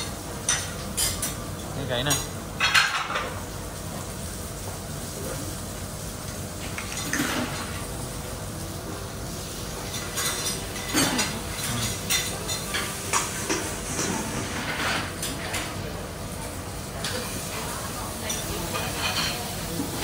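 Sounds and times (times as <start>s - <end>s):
cutlery and dishes clinking: 6.6s - 7.7s, 9.8s - 15.8s, 18.2s - 20.0s.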